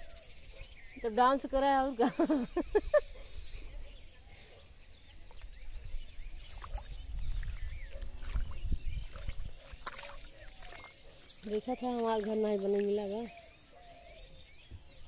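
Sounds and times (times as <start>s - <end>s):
faint bird chirps: 0.0s - 15.0s
wind rumbling on microphone: 5.2s - 10.9s.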